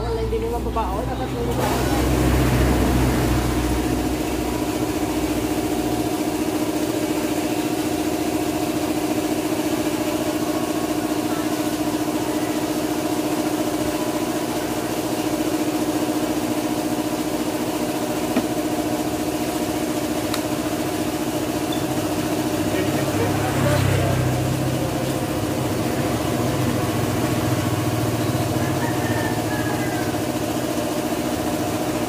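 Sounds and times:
small engine idling: 0.0s - 32.0s.

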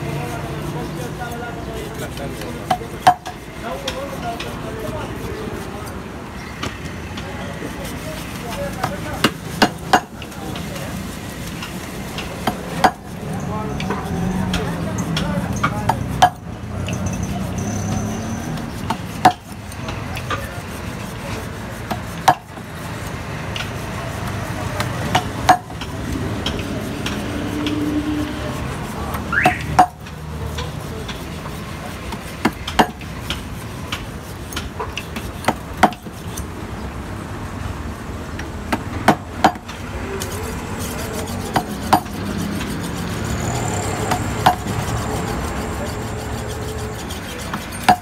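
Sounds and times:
steady background noise: 0.0s - 48.0s
hammer knocking nails: 38.7s - 39.8s.

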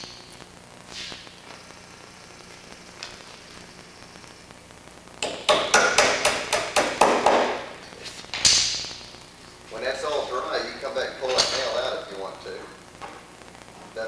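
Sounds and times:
small hammer tapping wood: 5.2s - 7.5s.

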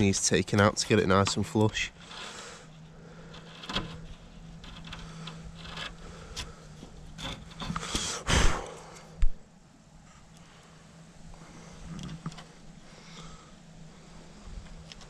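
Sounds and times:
quiet scraping with small clicks: 0.0s - 8.1s, 10.1s - 13.4s, 14.5s - 15.0s
wood chisel paring shavings: 0.0s - 8.2s.

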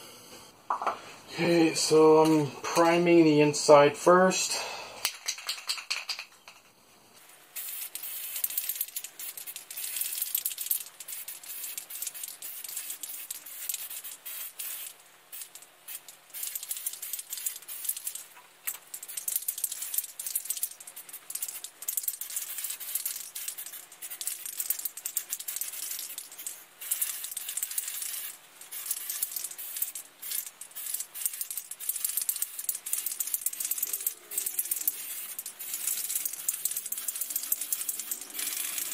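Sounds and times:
mixing ball rattling in can: 5.1s - 6.7s, 7.6s - 38.9s
aerosol spray can hissing: 7.6s - 18.2s, 18.9s - 38.9s.

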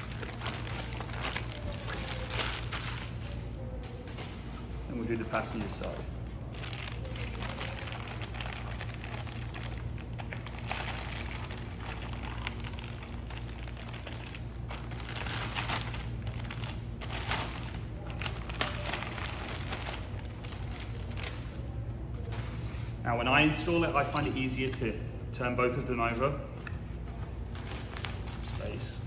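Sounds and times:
packaging crinkling: 0.0s - 3.4s, 5.8s - 21.5s, 27.5s - 28.8s
steady low hum: 0.0s - 29.0s.

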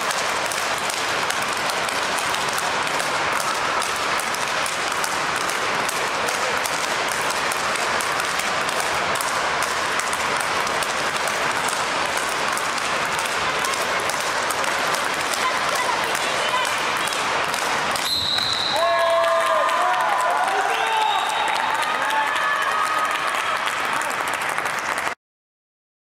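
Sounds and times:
rackets striking tethered balls: 0.0s - 18.9s.

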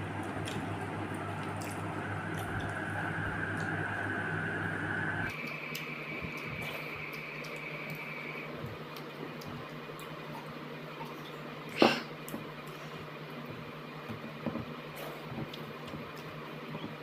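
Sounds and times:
steady low hum: 0.0s - 17.0s
thin high whine: 1.2s - 8.7s
chewing wet clicks: 5.3s - 8.1s, 8.9s - 11.4s.

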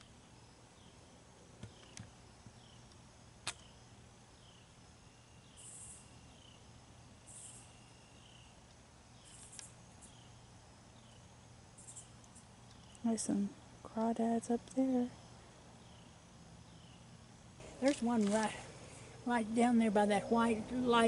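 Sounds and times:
sharp clicks: 2.8s - 3.7s.

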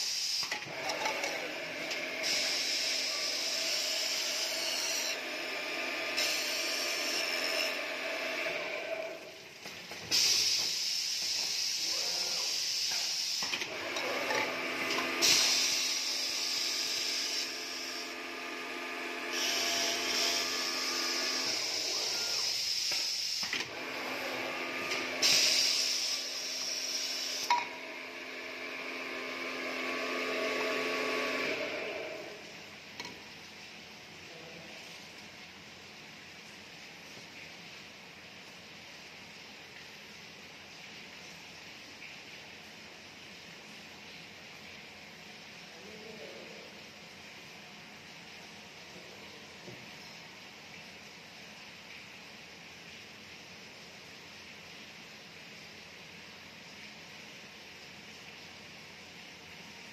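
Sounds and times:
machine motor hum: 0.7s - 9.4s, 13.6s - 22.6s, 23.6s - 32.6s
loud hissing: 10.1s - 13.6s.

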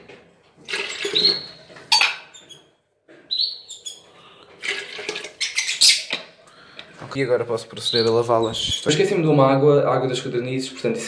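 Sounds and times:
water pouring into plastic jar: 0.6s - 1.8s, 4.5s - 5.5s
small birds chirping: 3.3s - 4.1s.

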